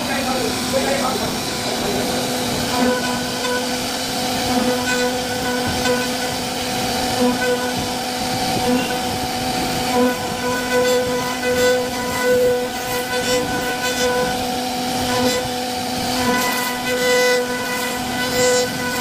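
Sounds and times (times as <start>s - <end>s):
router spindle cutting wood: 0.0s - 19.0s.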